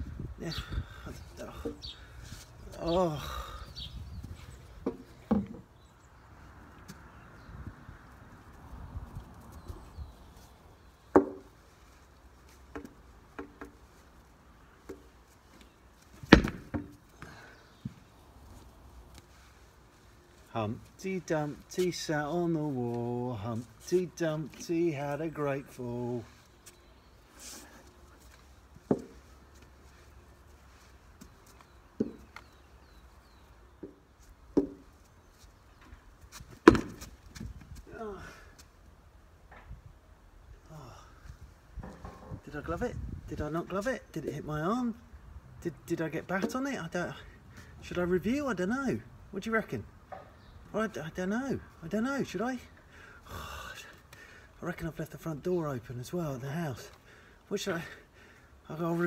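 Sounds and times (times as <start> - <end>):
plastic bat knocking on ground: 16.3 - 16.9, 36.6 - 37.1.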